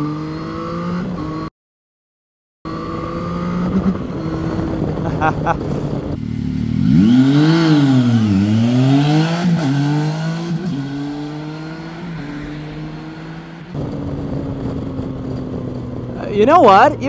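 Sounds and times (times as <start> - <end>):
motorcycle engine accelerating: 0.0 - 1.5, 2.7 - 17.0
wind noise: 2.7 - 9.4, 13.7 - 17.0.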